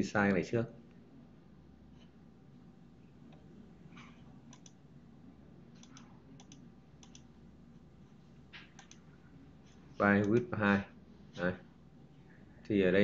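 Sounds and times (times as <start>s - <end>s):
low steady hum: 0.0s - 13.0s
computer mouse clicks: 3.3s - 4.8s, 5.8s - 7.3s, 8.6s - 10.5s.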